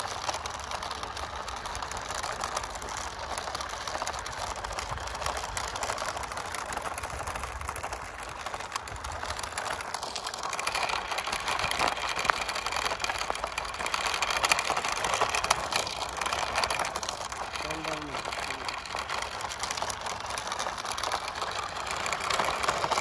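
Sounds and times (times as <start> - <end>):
toy truck electric motor whirring: 0.0 - 23.0
wheels on gravel: 0.0 - 23.0.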